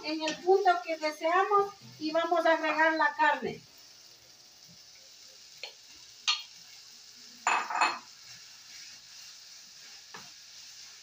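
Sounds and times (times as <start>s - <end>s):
faint frying sizzle: 0.0s - 11.0s
bowl and spoon knocking a pan: 7.4s - 8.1s.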